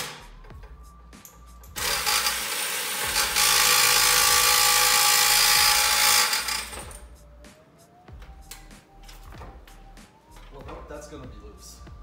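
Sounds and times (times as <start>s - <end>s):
handheld power tool running: 1.8s - 6.7s.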